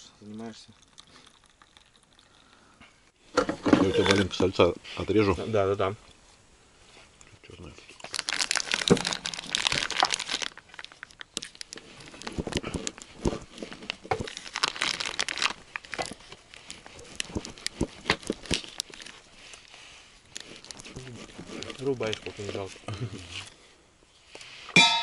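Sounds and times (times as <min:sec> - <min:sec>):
plastic wrapping crinkling: 0:07.9 - 0:23.5.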